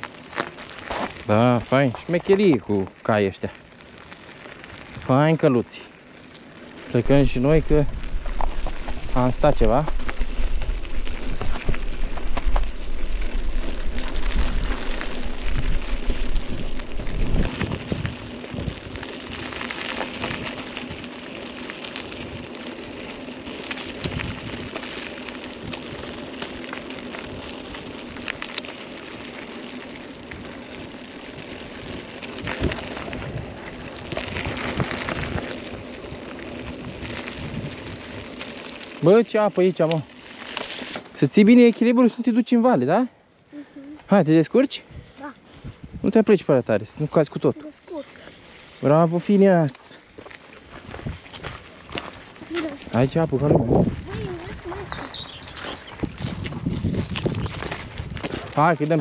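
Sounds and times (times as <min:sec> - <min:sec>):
bicycle tyres on rough track: 0:00.0 - 0:59.0
wind on microphone: 0:07.6 - 0:19.5, 0:36.8 - 0:38.2, 0:44.9 - 0:46.1, 0:50.8 - 0:51.4, 0:52.9 - 0:58.6.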